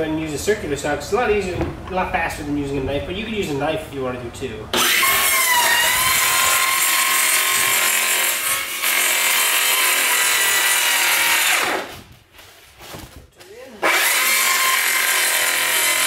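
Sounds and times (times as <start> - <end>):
saw blade winding down: 4.8 - 11.9, 13.8 - 16.0
circular saw cutting cardboard: 4.8 - 12.0, 13.8 - 16.0.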